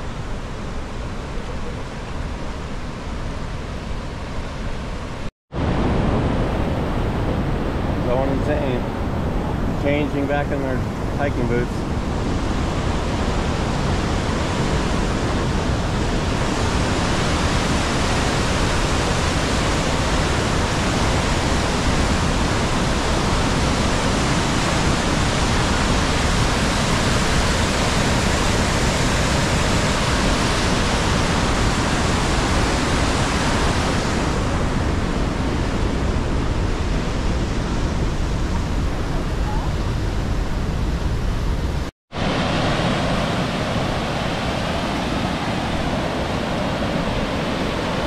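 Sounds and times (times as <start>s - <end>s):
waterfall rushing: 42.1s - 48.0s.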